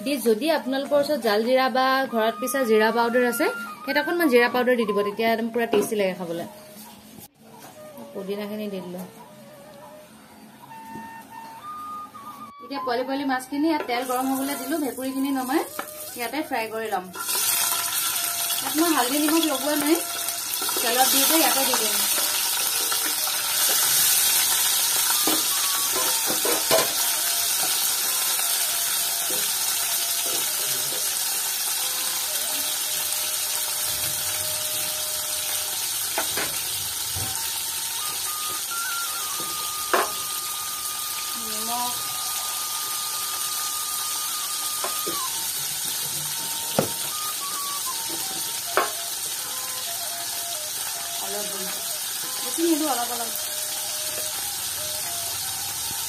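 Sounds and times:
fish sizzling in hot oil: 0:13.9 - 0:56.0.

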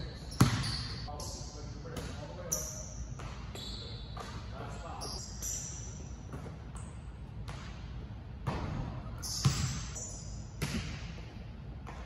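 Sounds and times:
basketball bouncing on court floor: 0:00.3 - 0:01.0, 0:03.1 - 0:04.4, 0:06.3 - 0:10.0, 0:10.6 - 0:12.0.

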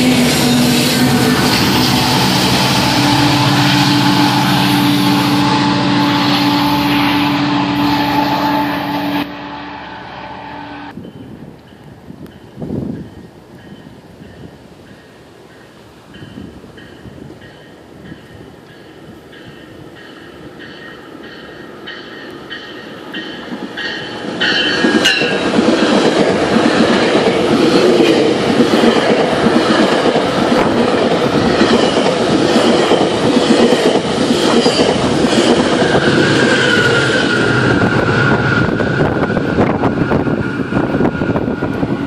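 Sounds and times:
train passing at speed: 0:00.0 - 0:42.0
train bell ringing: 0:10.6 - 0:26.1.

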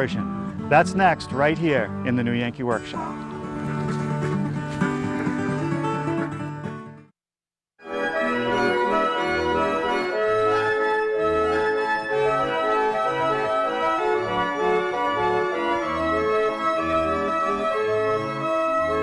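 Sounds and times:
mechanical pipe organ tune: 0:07.9 - 0:19.0.

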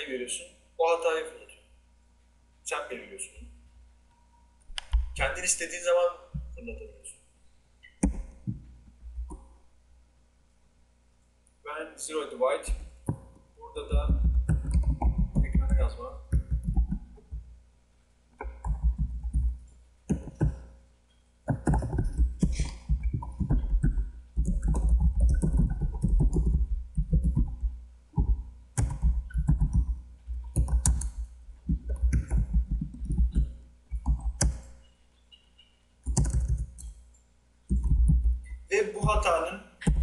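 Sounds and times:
heavy thumps: 0:08.0 - 0:09.4, 0:12.7 - 0:17.5, 0:18.4 - 0:20.8, 0:21.5 - 0:34.8, 0:37.7 - 0:40.0
typing on keyboard: 0:13.9 - 0:17.4, 0:18.4 - 0:20.7, 0:21.5 - 0:34.8, 0:36.0 - 0:37.0, 0:37.7 - 0:39.2.

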